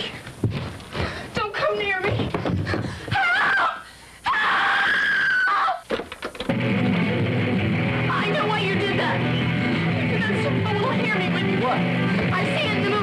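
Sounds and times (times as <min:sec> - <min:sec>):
high-pitched screaming: 0:03.2 - 0:05.8
rock music on radio: 0:06.4 - 0:13.0.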